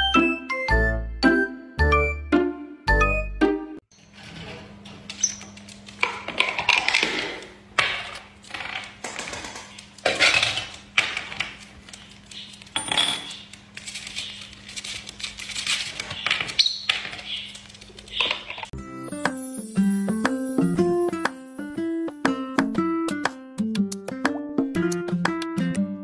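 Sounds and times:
bottle caps clattering on a table: 12.8 - 13.4
bird chirps: 16.2 - 18.4.

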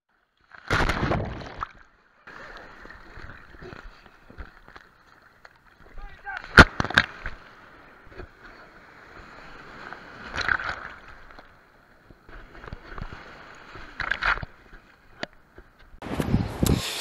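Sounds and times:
sea surf splashing: 2.3 - 15.1.

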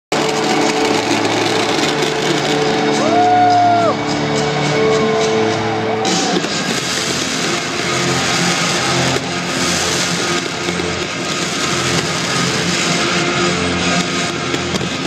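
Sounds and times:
fireworks crackling: 0.1 - 15.0
loud music over sound system: 0.1 - 15.0
crowd shouting: 2.5 - 6.8, 7.8 - 10.0
person whooping: 3.0 - 4.0.

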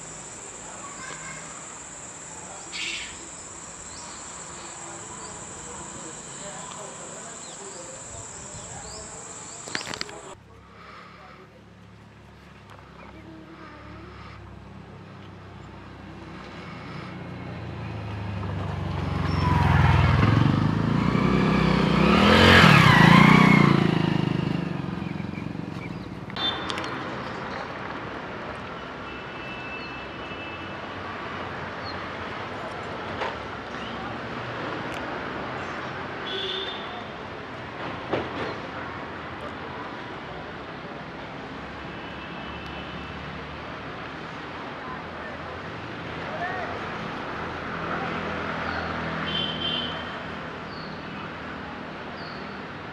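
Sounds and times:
motor vehicle passing by: 0.0 - 28.0.

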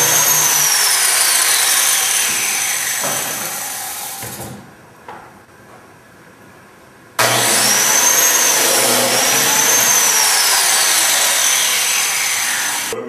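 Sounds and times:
biscuit joiner motor cutting wood: 0.0 - 4.3, 7.2 - 13.0.

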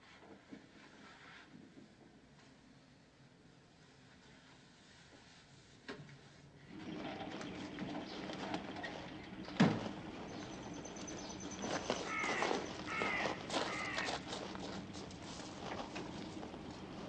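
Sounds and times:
birds chirping: 7.1 - 17.0
footsteps crunching on gravel: 9.7 - 17.0.

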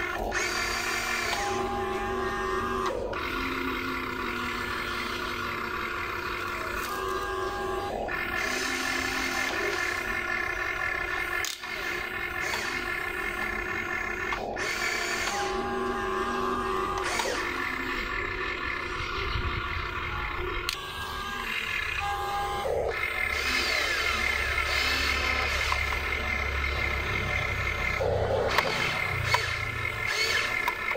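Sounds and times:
electric motors whining: 0.0 - 30.9.

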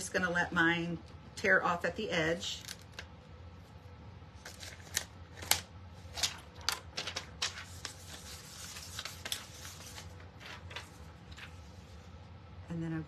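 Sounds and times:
plastic sheet crinkling: 4.4 - 12.0.

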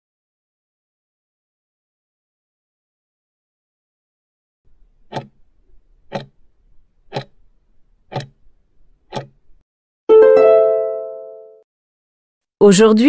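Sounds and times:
clock ticks: 5.0 - 6.5, 7.1 - 7.5, 8.1 - 8.5, 9.1 - 9.5.

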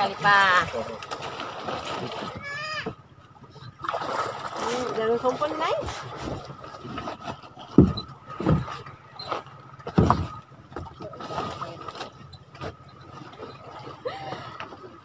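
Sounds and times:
thumps against wooden boat hull: 7.6 - 11.0.

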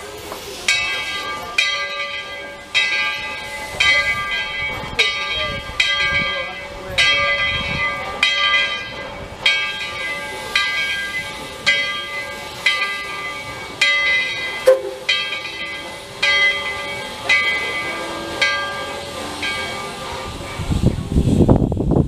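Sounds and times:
locomotive bell ringing: 0.5 - 21.0
steam hissing: 10.3 - 22.0.

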